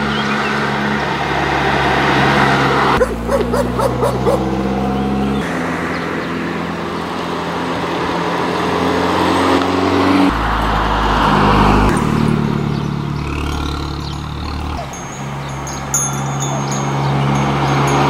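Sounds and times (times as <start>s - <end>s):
car engine and exhaust passing: 0.0s - 18.0s.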